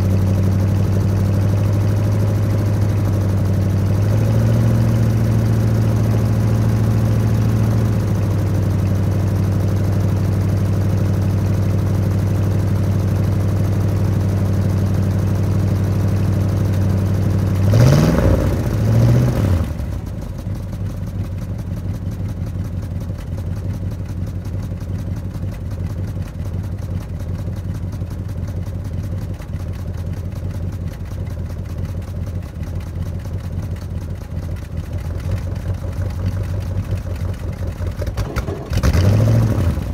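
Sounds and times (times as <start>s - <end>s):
car engine idling: 0.0s - 39.9s
engine throttle blips: 30.2s - 39.9s.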